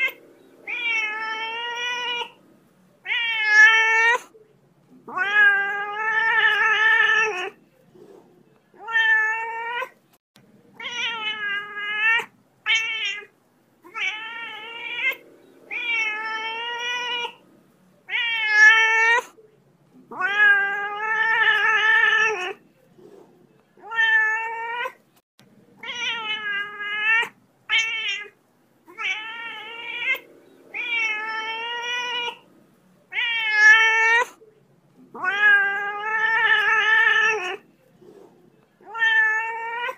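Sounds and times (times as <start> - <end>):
cat meowing: 0.0 - 2.4, 3.0 - 4.3, 5.1 - 7.6, 8.8 - 10.0, 10.8 - 13.3, 13.9 - 17.4, 18.1 - 19.4, 20.1 - 22.6, 23.8 - 25.0, 25.8 - 32.4, 33.1 - 34.4, 35.1 - 37.6, 38.8 - 39.9.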